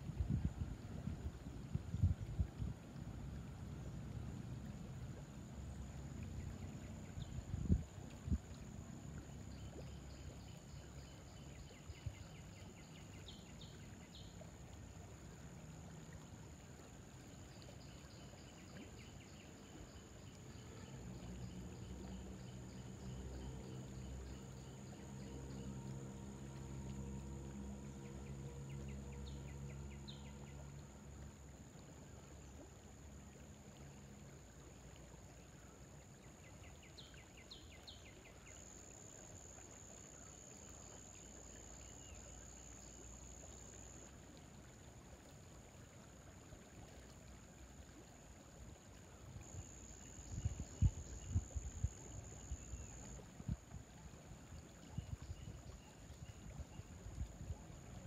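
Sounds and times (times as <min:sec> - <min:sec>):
low hum: 0:21.8 - 0:34.0.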